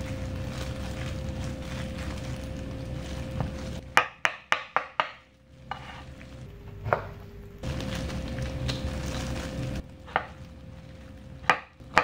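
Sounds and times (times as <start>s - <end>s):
knife chopping on wooden board: 3.4s - 6.0s, 10.0s - 10.4s, 11.4s - 12.0s.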